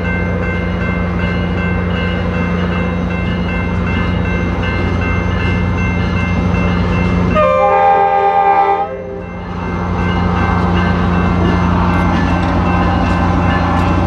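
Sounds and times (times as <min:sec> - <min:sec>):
diesel locomotives droning: 0:00.0 - 0:14.0
locomotive air horn blast: 0:07.4 - 0:09.2.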